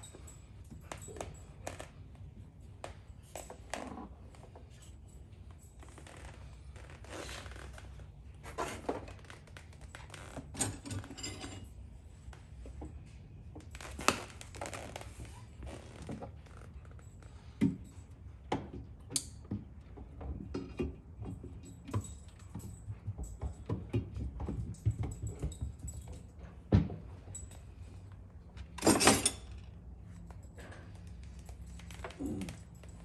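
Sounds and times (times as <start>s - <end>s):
metallic clinks of bolts and tools: 0.0s - 7.2s, 8.3s - 12.0s, 16.0s - 33.0s.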